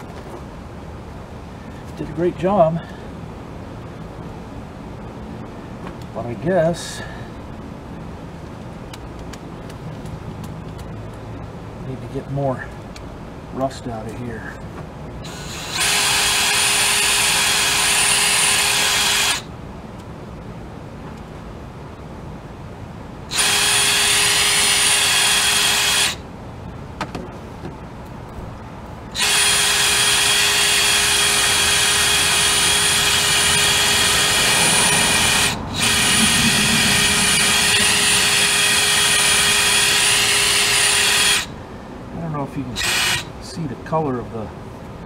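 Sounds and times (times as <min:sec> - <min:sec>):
cordless drill whining: 0:15.2 - 0:19.5, 0:23.3 - 0:26.2, 0:29.1 - 0:41.5, 0:42.8 - 0:43.3.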